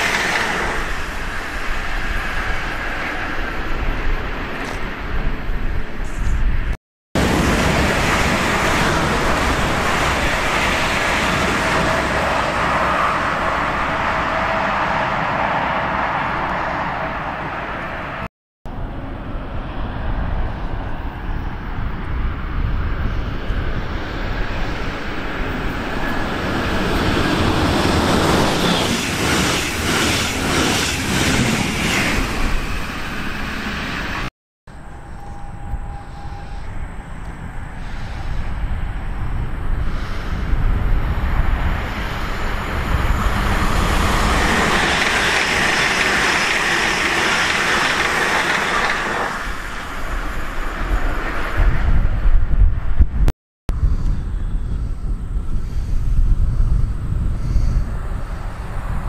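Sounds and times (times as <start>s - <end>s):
electric train passing: 0.0s - 6.0s, 7.2s - 53.0s, 57.9s - 59.0s
wheel clacks over rail joints: 44.2s - 49.9s.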